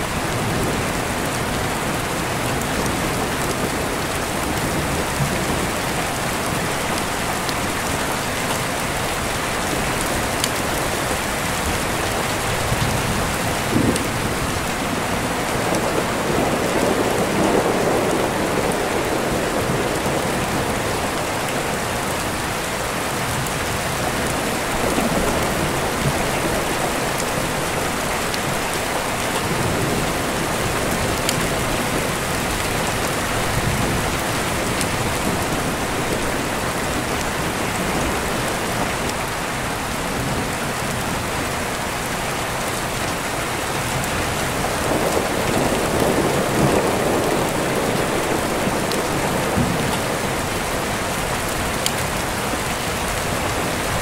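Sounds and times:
steady rain: 0.0s - 54.0s
rolling thunder: 11.6s - 21.2s, 44.0s - 51.6s.

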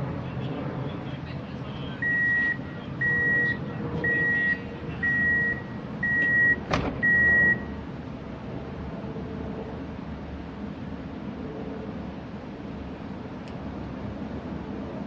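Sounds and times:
low tram hum: 0.0s - 15.0s
tram warning beeps: 1.8s - 7.8s.

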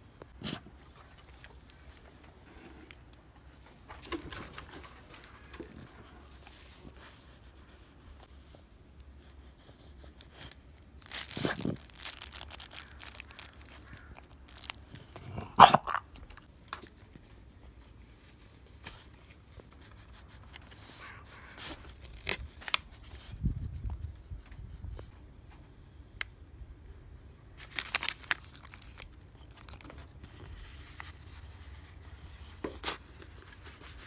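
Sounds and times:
packaging crinkling: 10.2s - 15.1s, 27.6s - 31.0s.

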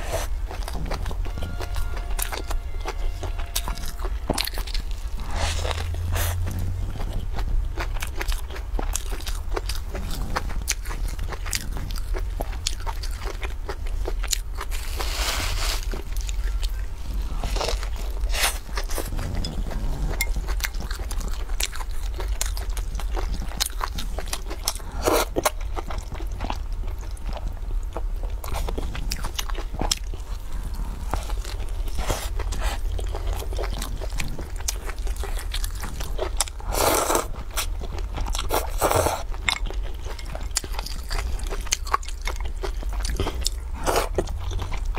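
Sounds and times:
wet chewing: 0.0s - 15.2s, 15.8s - 44.9s
low steady hum: 0.0s - 44.9s
slurping noodles: 36.6s - 37.4s, 38.4s - 39.3s.

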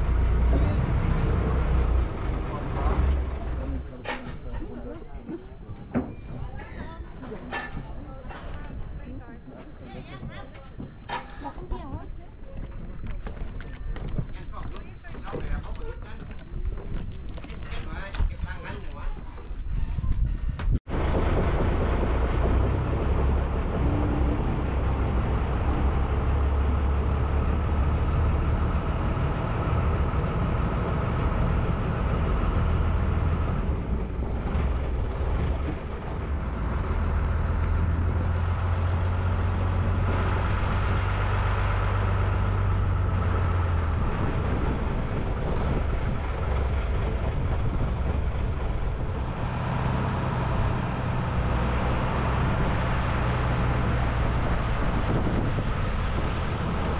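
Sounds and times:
boat engine running: 20.9s - 56.9s.

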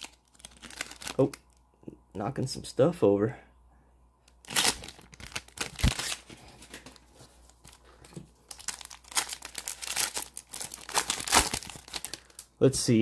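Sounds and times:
plastic wrapper crinkling and tearing: 0.0s - 1.6s, 4.3s - 12.5s.

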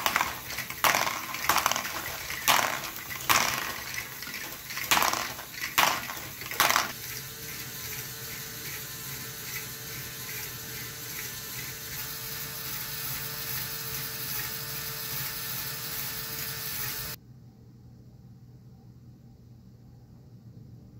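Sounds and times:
plastic balls clacking: 0.0s - 7.0s
motor and gears whirring: 0.0s - 17.2s.

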